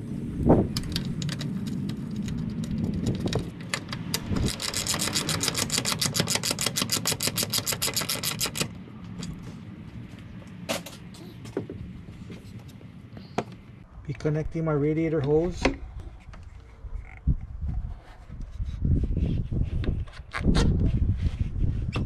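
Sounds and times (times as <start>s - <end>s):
socket ratchet clicking: 0.8s - 8.7s.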